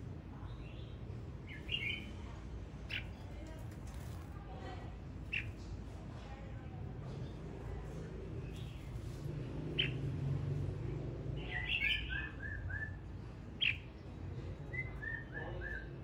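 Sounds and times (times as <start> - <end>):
bulbul singing: 0.5 - 2.3, 9.7 - 10.2, 11.4 - 14.0.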